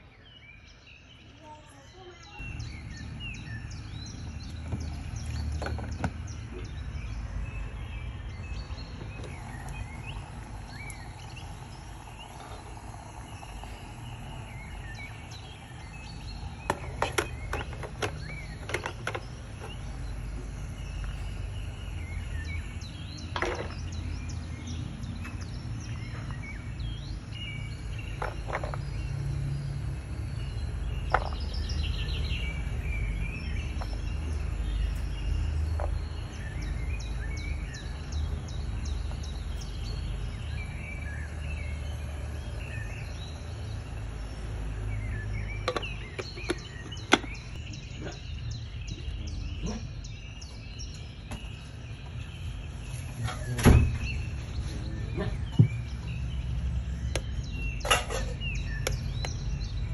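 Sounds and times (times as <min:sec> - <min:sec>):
household background hum: 0:02.4 - 0:27.0.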